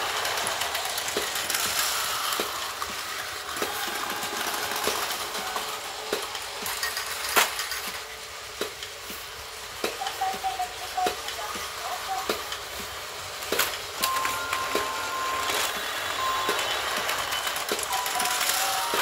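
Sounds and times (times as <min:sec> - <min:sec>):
toy train mechanical whir: 0:00.0 - 0:19.0.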